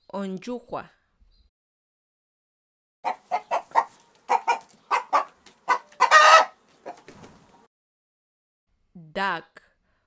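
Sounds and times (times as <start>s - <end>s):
chicken squawk: 3.0s - 7.1s
chicken clucking: 3.0s - 7.3s.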